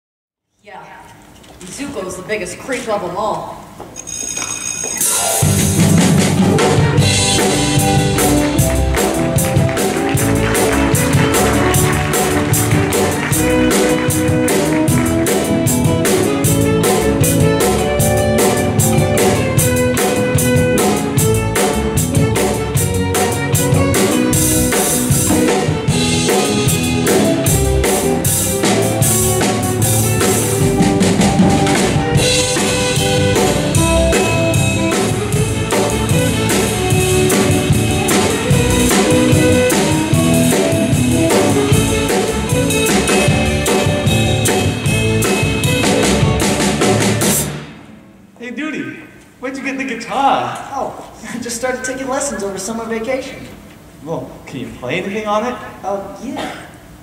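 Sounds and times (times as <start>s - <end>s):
held instrumental notes: 4.0s - 49.4s
drum-kit beat: 4.9s - 47.7s.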